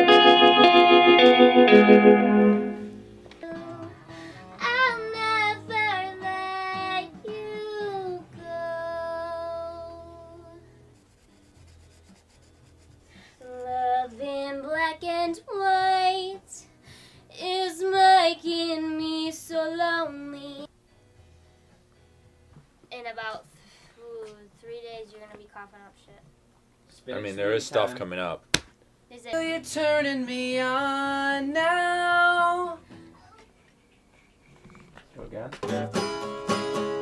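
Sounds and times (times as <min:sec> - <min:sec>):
woman singing: 0:03.4 - 0:10.6, 0:13.4 - 0:16.7, 0:17.3 - 0:20.7, 0:29.2 - 0:32.8.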